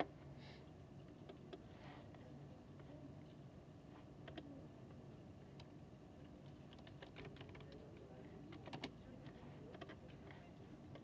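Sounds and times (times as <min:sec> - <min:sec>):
air conditioning hum: 0:00.0 - 0:11.0
keyboard typing clicks: 0:06.4 - 0:09.0.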